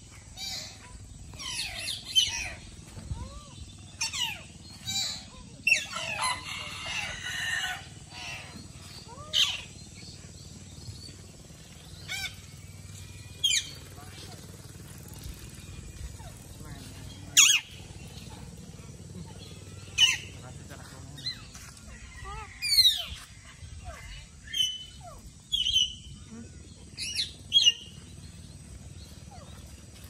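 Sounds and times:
parakeets calling shrilly: 0:00.0 - 0:30.0.

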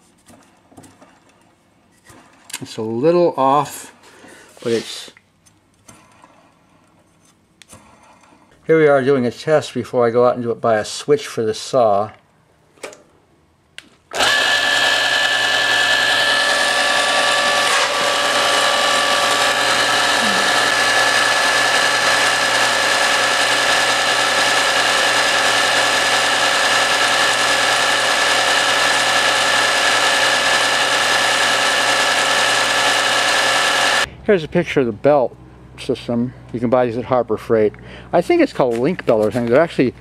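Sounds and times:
table saw motor whining: 0:14.1 - 0:34.1.

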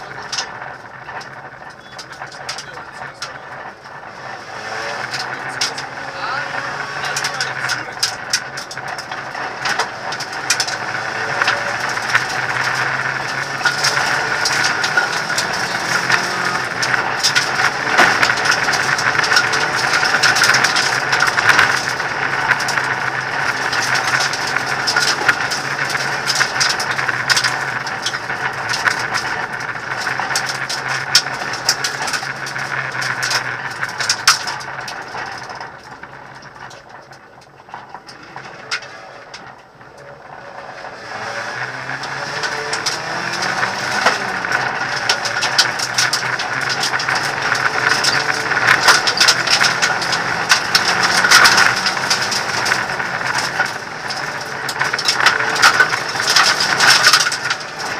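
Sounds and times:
car engine running at speed: 0:00.0 - 0:57.9
rattling and clicking in cabin: 0:42.4 - 0:57.9.

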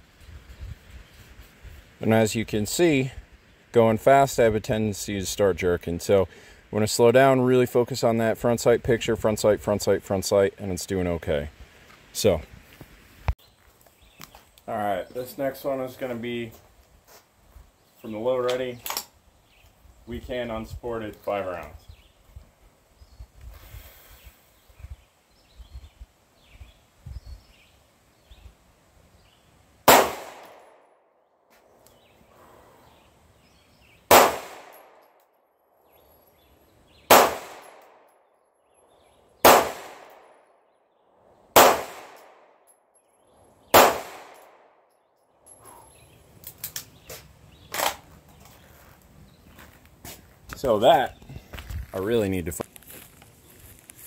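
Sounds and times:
gun handling clicks: 0:18.4 - 0:19.1, 0:46.4 - 0:47.0, 0:47.7 - 0:48.1
pistol shots: 0:29.9 - 0:30.8, 0:34.1 - 0:35.0, 0:37.1 - 0:38.0, 0:39.4 - 0:40.3, 0:41.6 - 0:42.4, 0:43.7 - 0:44.6.

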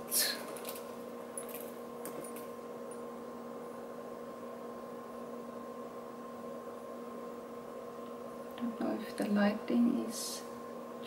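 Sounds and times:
electrical hum: 0:00.0 - 0:11.0
chain strap clinking: 0:01.4 - 0:02.4.

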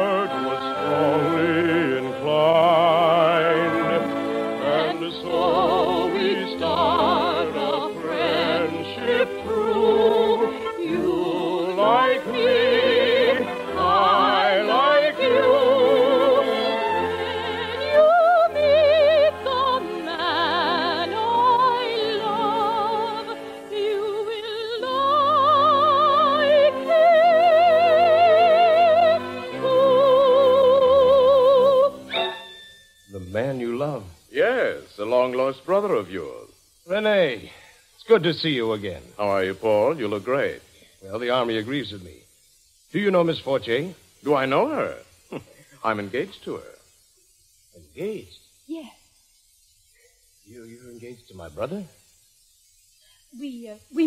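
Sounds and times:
operetta singing with vibrato: 0:00.0 - 0:37.4.

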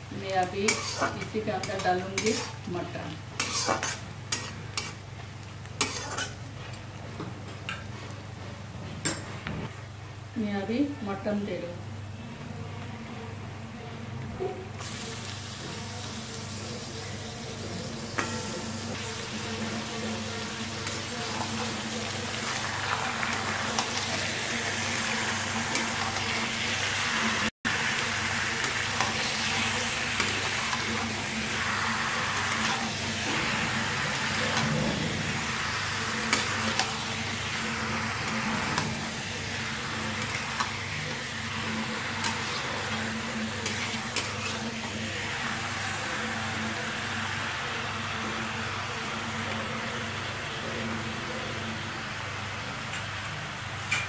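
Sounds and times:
meat sizzling in hot oil: 0:00.4 - 0:06.4, 0:14.8 - 0:49.4
metal spatula scraping: 0:00.6 - 0:02.7, 0:03.3 - 0:05.0, 0:05.8 - 0:06.8, 0:28.5 - 0:45.4.

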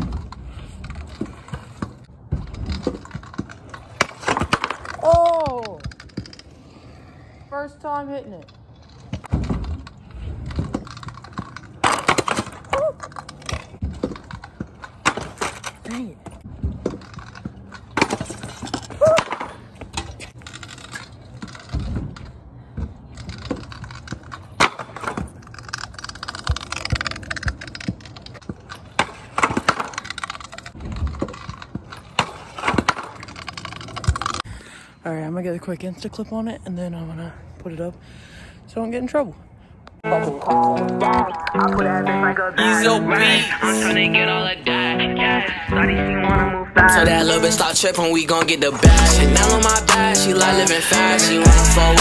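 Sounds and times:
skateboard clacks and landings: 0:00.0 - 0:06.5, 0:09.0 - 0:15.8, 0:21.3 - 0:34.4
skateboard wheels rolling on concrete: 0:00.0 - 0:38.0, 0:38.9 - 0:52.0.

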